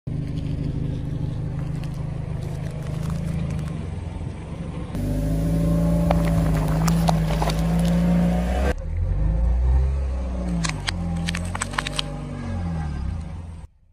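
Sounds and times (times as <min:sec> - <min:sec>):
car engine running slowly: 0:00.1 - 0:13.9
objects crackling and crunching: 0:01.5 - 0:03.8, 0:06.0 - 0:08.2, 0:10.6 - 0:12.2.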